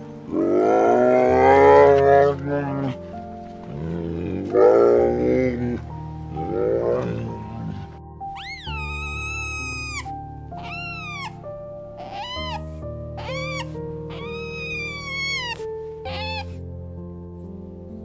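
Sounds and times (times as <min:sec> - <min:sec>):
music of slow held chords: 0:00.0 - 0:18.0
meow-like animal calls: 0:06.4 - 0:16.6.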